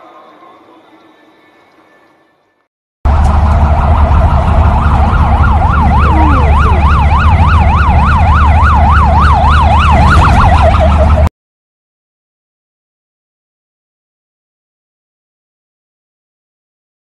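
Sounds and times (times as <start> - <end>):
road and engine rumble: 3.1 - 11.3
siren in fast yelp: 3.2 - 11.3.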